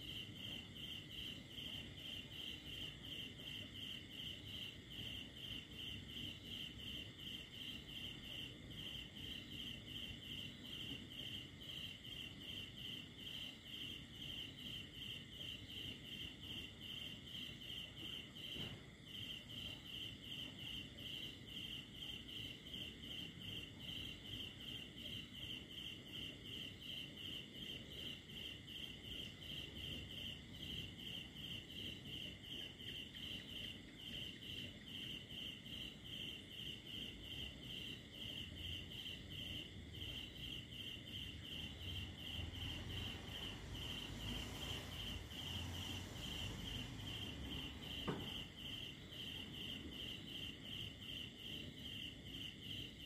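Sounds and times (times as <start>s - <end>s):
cricket chirping: 0.0s - 53.0s.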